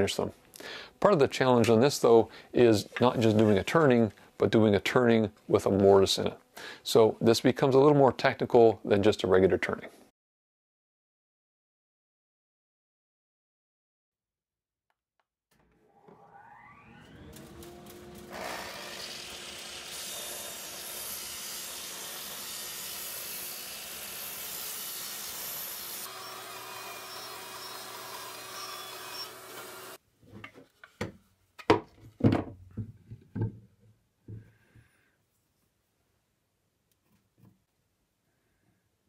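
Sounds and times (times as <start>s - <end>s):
miter saw cutting board: 15.6s - 30.0s.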